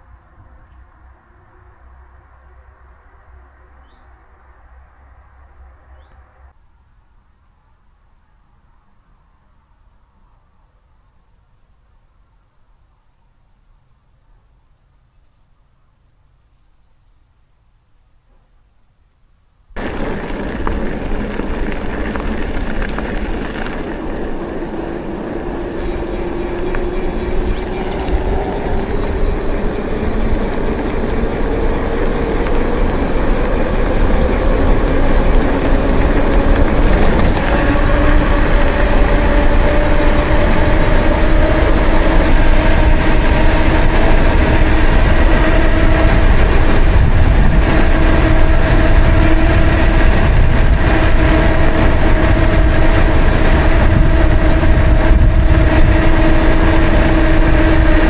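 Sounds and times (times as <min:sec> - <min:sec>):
vehicle rolling rumble and hum: 0:19.8 - 0:58.0.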